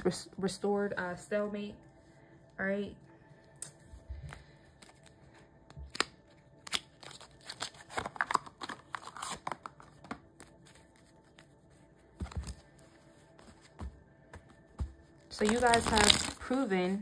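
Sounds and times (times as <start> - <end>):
cards being shuffled: 4.2 - 11.6, 12.2 - 17.0.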